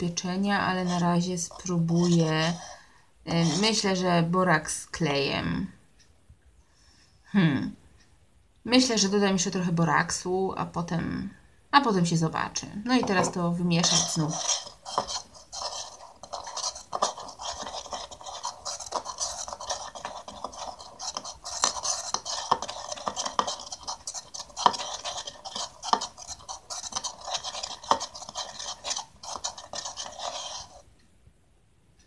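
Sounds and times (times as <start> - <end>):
spoon scraping a bowl: 0.0 - 3.8, 12.9 - 30.9.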